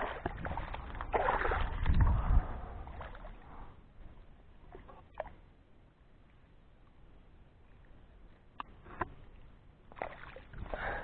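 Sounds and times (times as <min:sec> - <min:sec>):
fish thrashing and splashing in water: 0:00.0 - 0:02.0.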